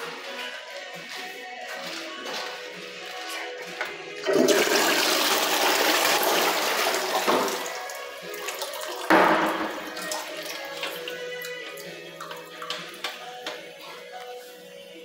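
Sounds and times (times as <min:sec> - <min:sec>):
toilet flushing: 0:04.2 - 0:11.1.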